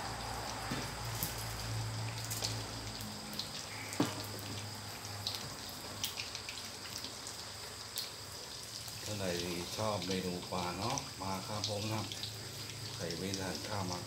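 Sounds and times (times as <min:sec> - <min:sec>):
fish frying in crackling oil: 0:00.0 - 0:14.0.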